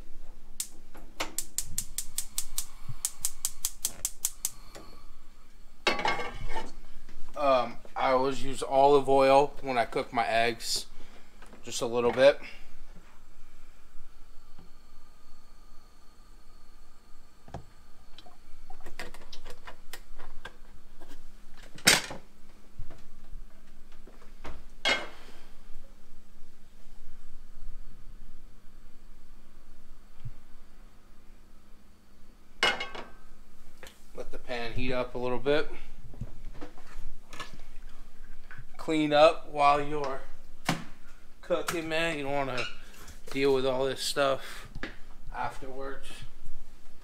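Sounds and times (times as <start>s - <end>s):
rapid sharp clicks: 1.4s - 4.6s.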